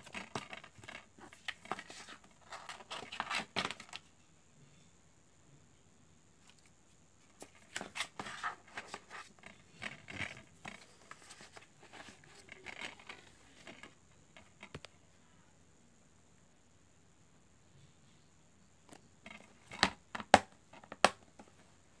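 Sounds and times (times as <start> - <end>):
paper rustling: 7.4 - 13.9.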